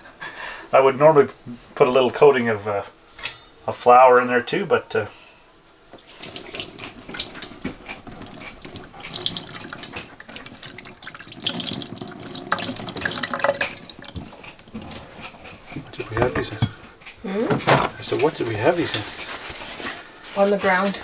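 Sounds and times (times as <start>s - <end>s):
water splashing into a sink: 6.0s - 14.8s.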